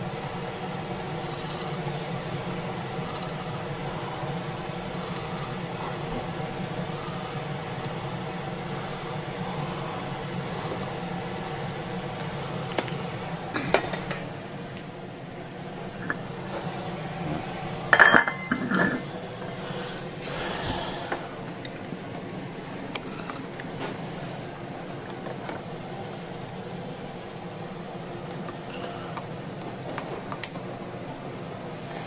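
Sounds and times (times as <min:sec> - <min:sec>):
background hum: 0:00.0 - 0:32.0
utensils and dishes clattering: 0:17.9 - 0:19.1.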